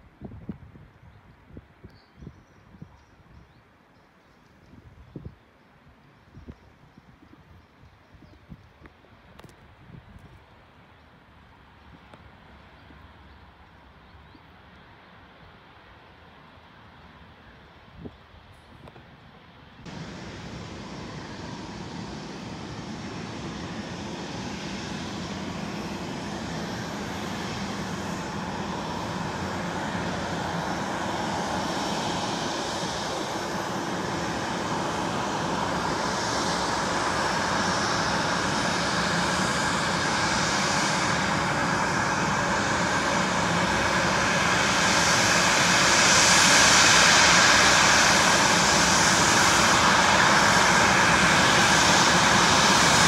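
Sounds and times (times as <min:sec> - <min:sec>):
jet engines taxiing: 0:04.4 - 0:53.0
high engine whine: 0:19.7 - 0:53.0.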